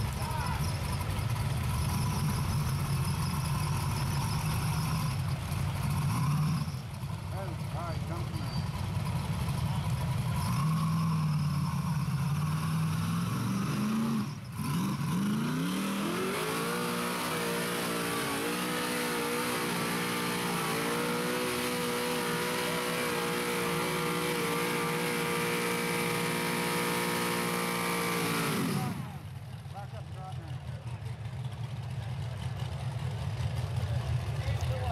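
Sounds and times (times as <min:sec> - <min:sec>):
buggy engine revving: 0:00.0 - 0:34.9.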